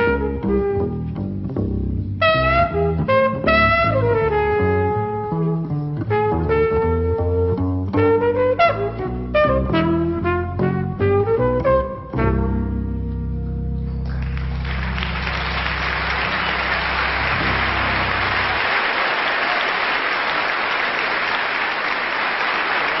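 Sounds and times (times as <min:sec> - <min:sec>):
double bass note: 0:00.0 - 0:18.6
trumpet note: 0:02.2 - 0:05.3, 0:06.1 - 0:13.3, 0:15.1 - 0:18.9
audience applause: 0:14.1 - 0:23.0.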